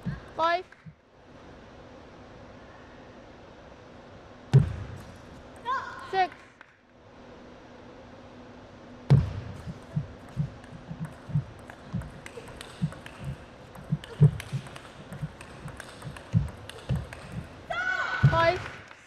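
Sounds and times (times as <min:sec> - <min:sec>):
table tennis ball clicking: 0:09.8 - 0:17.6.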